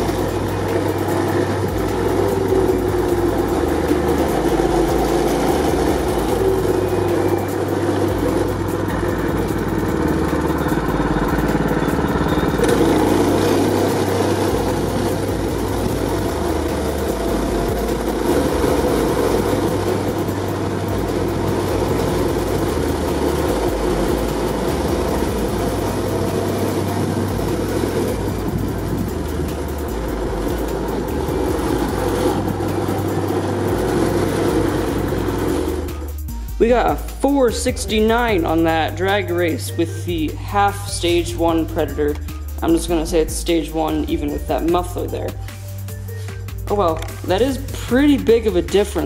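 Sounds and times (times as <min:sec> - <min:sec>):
go-kart engine running: 0:00.0 - 0:36.3.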